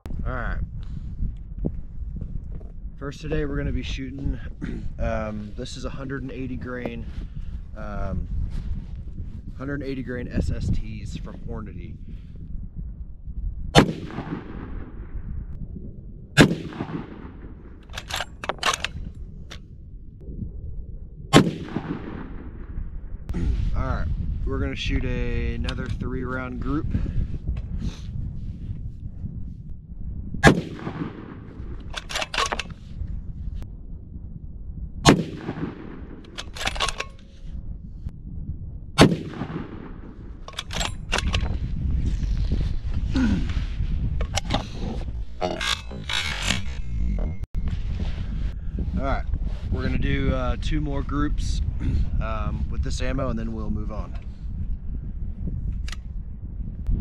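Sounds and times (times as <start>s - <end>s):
rifle shots with rumbling echo: 0.9s - 28.6s, 30.2s - 43.2s
rifle shot: 13.7s - 15.2s, 16.4s - 19.0s, 21.3s - 22.8s, 30.4s - 32.8s, 35.0s - 37.4s, 39.0s - 41.5s
rifle bolt clicking: 17.8s - 19.0s, 31.9s - 32.8s, 36.2s - 37.3s, 40.5s - 41.5s.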